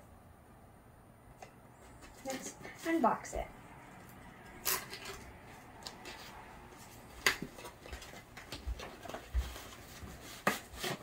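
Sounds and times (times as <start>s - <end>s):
clicks and taps of packaging: 7.2s - 9.8s.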